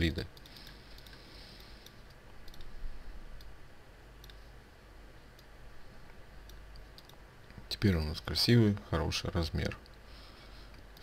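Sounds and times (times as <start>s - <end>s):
faint low hum: 0.0s - 11.0s
computer mouse clicks: 0.3s - 2.7s, 4.2s - 4.5s, 6.4s - 7.2s, 10.7s - 11.0s.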